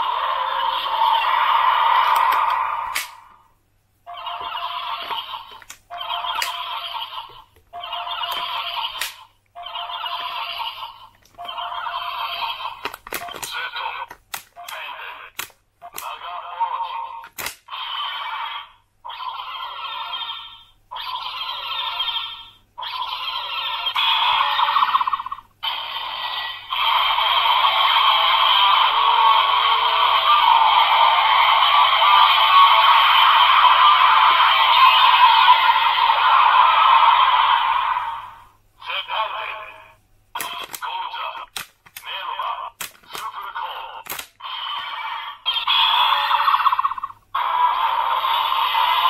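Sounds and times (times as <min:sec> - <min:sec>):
toy electronic sound effects and jingles: 0:04.1 - 0:09.0, 0:16.0 - 0:24.9
toy electronic sound effects: 0:04.1 - 0:39.7, 0:40.4 - 0:49.0
sharp plastic clicks: 0:12.8 - 0:16.2, 0:17.2 - 0:17.7, 0:40.4 - 0:42.1, 0:42.8 - 0:44.4.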